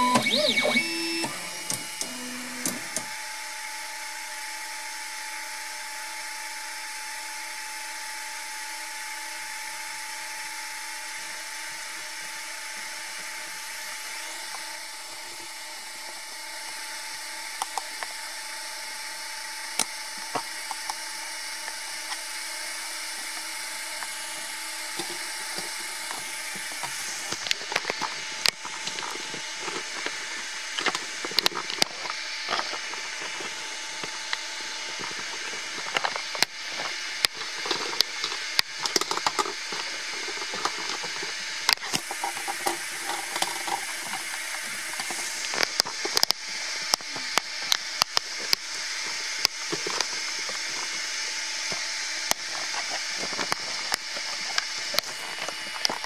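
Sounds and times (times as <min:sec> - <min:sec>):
three d printer whine: 0:00.0 - 0:04.6
fan hum: 0:00.0 - 0:06.7.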